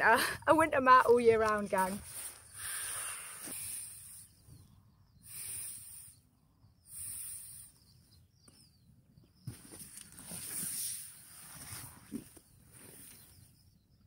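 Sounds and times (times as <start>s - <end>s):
breathy puffs into valve: 5.2s - 6.2s.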